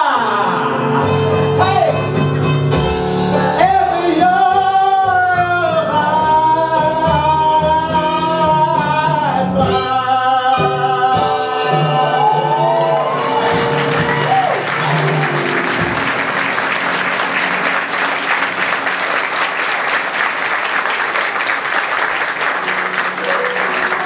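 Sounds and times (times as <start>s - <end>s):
band playing held notes: 11.3s - 24.0s
theatre audience applauding: 11.9s - 24.0s.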